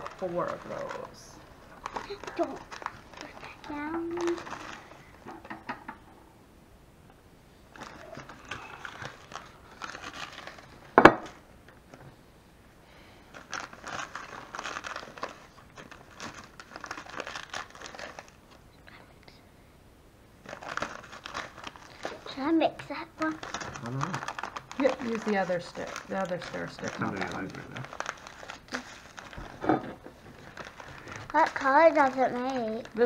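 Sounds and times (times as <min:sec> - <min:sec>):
plastic packet crackling: 0:00.0 - 0:05.3, 0:07.7 - 0:11.4, 0:13.3 - 0:18.6, 0:20.4 - 0:33.0.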